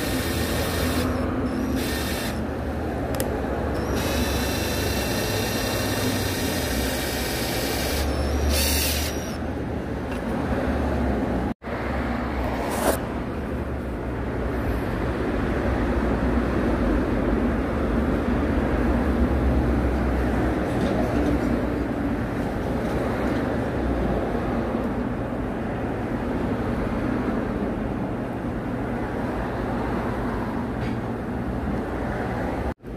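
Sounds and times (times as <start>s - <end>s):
electric drill whining: 0.0s - 2.4s, 3.7s - 9.4s.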